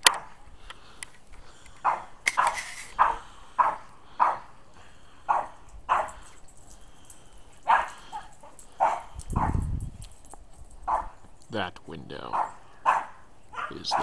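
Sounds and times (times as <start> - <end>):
dog barking: 0.0 - 0.4, 1.8 - 4.6, 5.2 - 6.2, 7.6 - 9.7, 10.8 - 11.3, 12.2 - 14.0.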